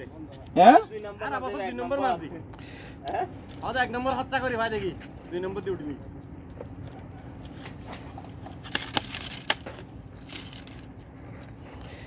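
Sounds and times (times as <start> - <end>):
knife crunching through fish: 8.6 - 9.8.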